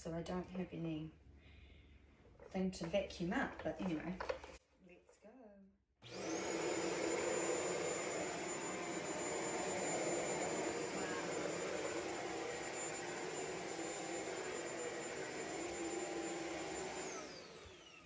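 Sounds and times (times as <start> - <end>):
stick vacuum running: 6.0 - 18.0.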